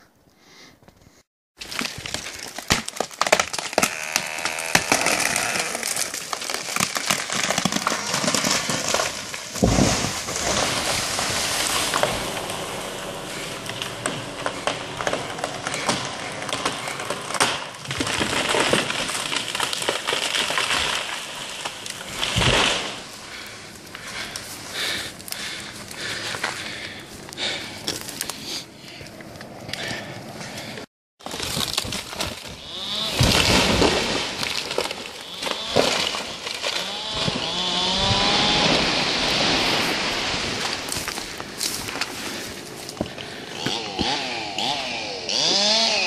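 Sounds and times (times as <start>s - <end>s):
wood cracking and breaking: 1.6s - 28.4s, 31.2s - 44.7s.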